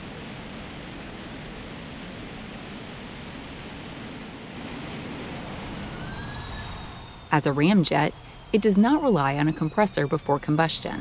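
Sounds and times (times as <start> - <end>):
jet engine roaring on test stand: 4.6 - 11.0.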